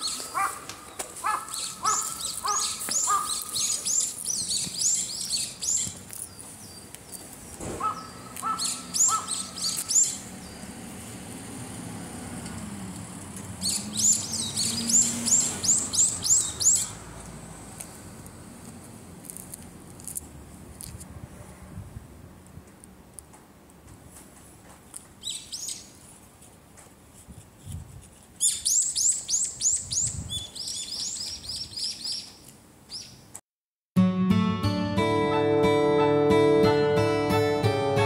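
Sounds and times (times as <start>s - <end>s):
birds singing high curving notes: 0.0s - 7.2s, 7.8s - 10.8s, 13.6s - 17.0s.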